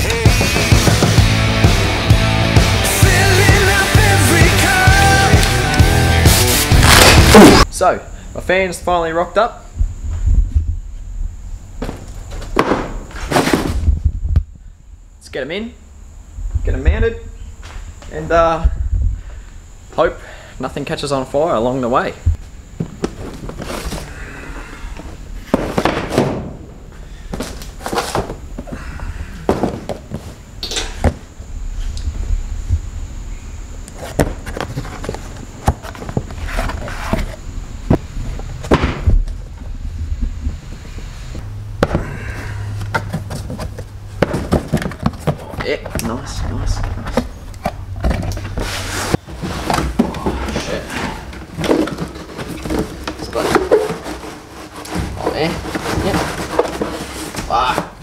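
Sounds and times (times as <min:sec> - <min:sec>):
boxes knocking down: 0:06.4 - 0:07.6, 0:11.8 - 0:14.0, 0:25.4 - 0:28.6, 0:29.4 - 0:30.3, 0:38.6 - 0:39.3, 0:41.8 - 0:47.4, 0:48.0 - 0:58.0
cardboard boxes scuffing: 0:11.8 - 0:14.0, 0:22.8 - 0:24.2, 0:25.0 - 0:26.6, 0:27.3 - 0:30.4, 0:34.0 - 0:39.2, 0:41.8 - 0:58.0.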